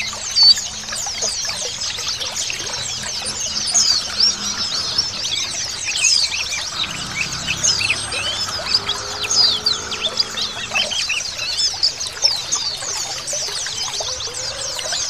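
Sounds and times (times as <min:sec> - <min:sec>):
birds chirping and twittering: 0:00.0 - 0:15.0.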